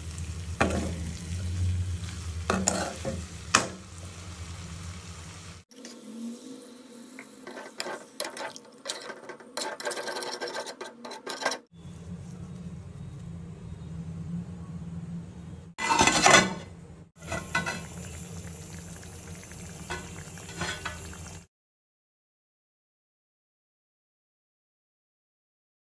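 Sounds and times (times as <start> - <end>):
curry sizzling and bubbling: 0.0 - 11.8, 15.8 - 21.5.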